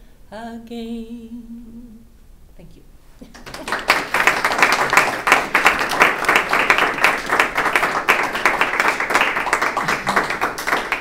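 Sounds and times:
audience applause: 3.3s - 11.0s.

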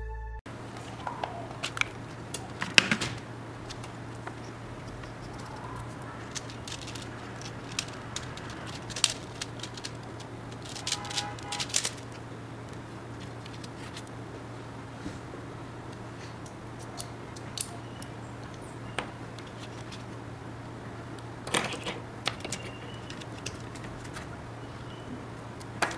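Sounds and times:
tools clattering: 1.6s - 12.2s, 21.5s - 24.3s
metal tools clicking and rattling: 3.6s - 12.2s, 13.2s - 14.1s, 21.5s - 24.2s.

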